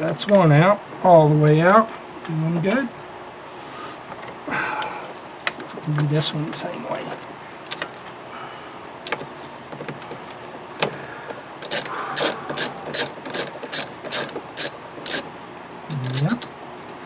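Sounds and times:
hand ratchet clicking: 11.6s - 15.3s, 15.9s - 16.5s.

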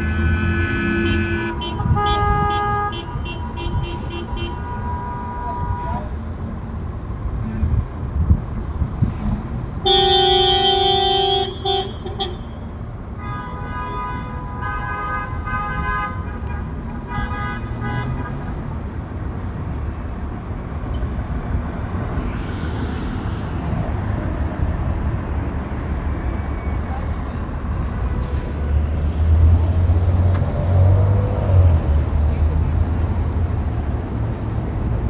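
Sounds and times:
loud vehicle horn blast: 0.0s - 6.1s, 9.8s - 12.4s
traffic rumble: 0.0s - 35.0s.

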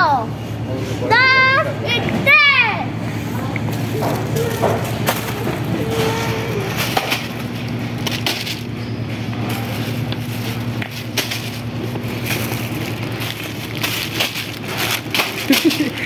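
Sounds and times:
shopping cart rattling on tiles: 3.9s - 8.8s, 9.4s - 16.0s
snack packets crackling: 4.0s - 16.0s.

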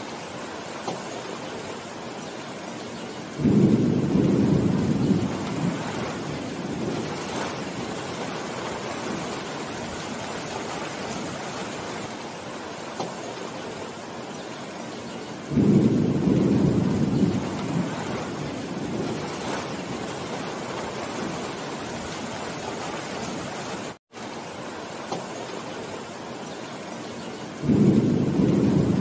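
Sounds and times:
heavy rain on leafy trees: 0.0s - 29.0s
thunder rolling: 3.4s - 10.0s, 15.5s - 23.4s, 27.6s - 29.0s.

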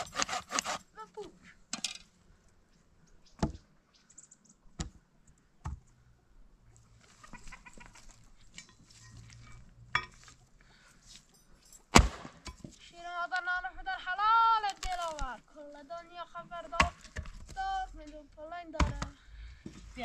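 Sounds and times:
hen clucking: 7.0s - 8.3s
dry branches cracking: 14.6s - 15.4s.

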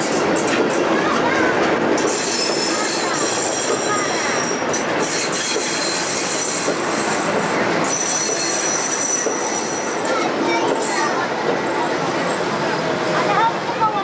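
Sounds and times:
train rolling rumble: 0.0s - 14.0s
train wheels squealing on rails: 2.0s - 12.9s.

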